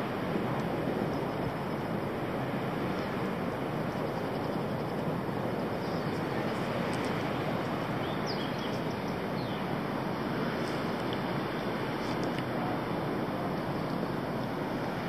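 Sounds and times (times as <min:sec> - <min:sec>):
steady rushing noise: 0:00.0 - 0:15.0
faint bird chirps: 0:08.0 - 0:09.6.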